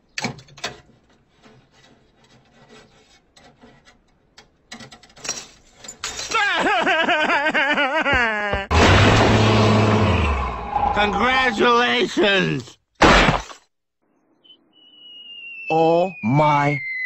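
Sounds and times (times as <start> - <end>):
faint scraping and rubbing: 0.6 - 6.0.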